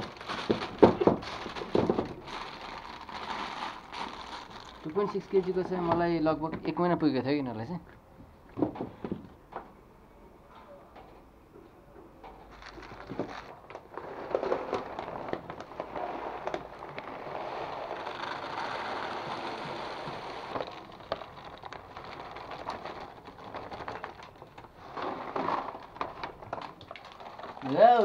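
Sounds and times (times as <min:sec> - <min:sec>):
bag rustling: 0:00.0 - 0:05.9, 0:12.5 - 0:24.1
pellets rattling: 0:00.0 - 0:06.8, 0:12.4 - 0:28.0
kibble pouring into bin: 0:12.5 - 0:28.0.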